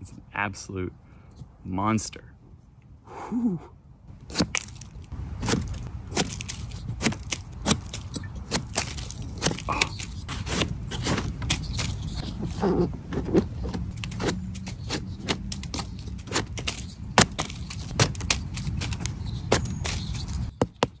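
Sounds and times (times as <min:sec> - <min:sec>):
knife scraping mushroom stem: 0:04.2 - 0:20.6.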